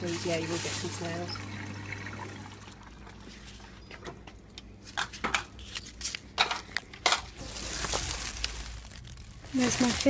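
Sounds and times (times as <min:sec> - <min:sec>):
plastic bag crinkling: 0:00.0 - 0:01.3, 0:06.8 - 0:10.0.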